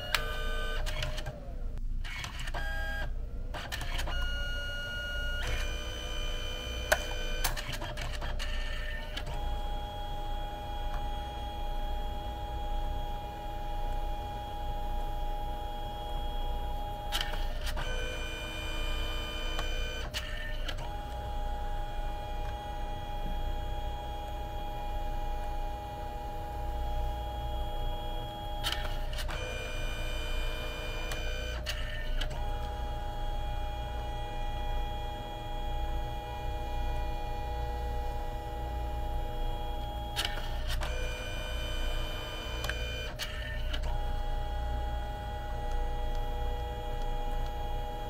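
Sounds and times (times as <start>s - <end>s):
photo printer motor whine: 0.0s - 48.0s
printer clicks: 39.8s - 47.9s.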